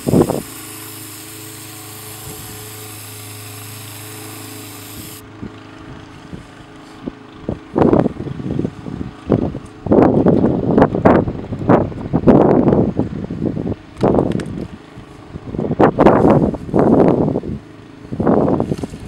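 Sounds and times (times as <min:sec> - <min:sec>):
aerosol can spraying hiss: 0:00.0 - 0:05.2.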